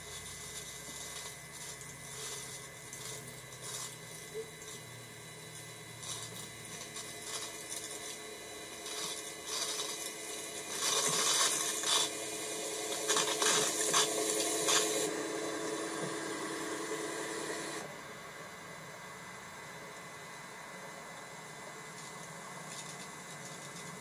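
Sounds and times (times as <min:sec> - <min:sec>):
snowplow blower whine: 0:06.0 - 0:18.0.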